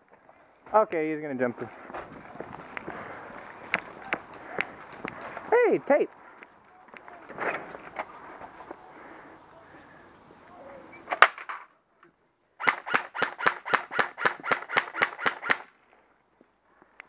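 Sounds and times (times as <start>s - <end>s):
airsoft gun shots: 12.6s - 15.7s.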